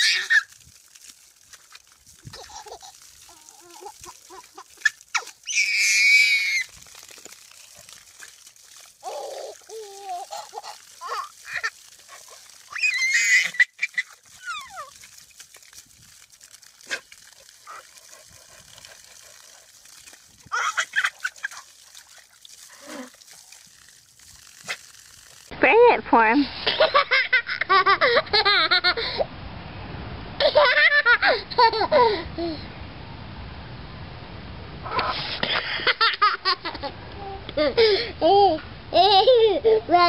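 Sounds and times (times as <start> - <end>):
baby squealing and laughing: 0.0 - 0.6, 2.2 - 6.8, 9.0 - 15.0, 17.6 - 17.9, 20.5 - 21.7
baby crying: 9.0 - 11.6.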